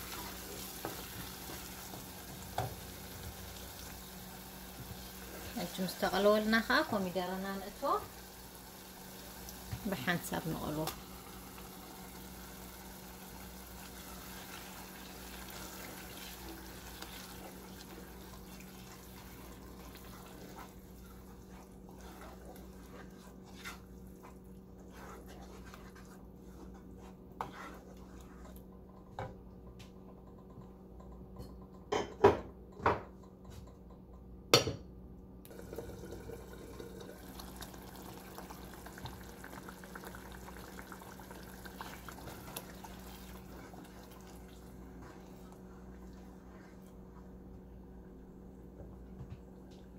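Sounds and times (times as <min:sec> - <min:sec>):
wooden spoon stirring: 0:00.0 - 0:04.1, 0:09.6 - 0:31.8, 0:38.3 - 0:49.9
sauce simmering and bubbling: 0:00.0 - 0:30.0, 0:35.5 - 0:49.9.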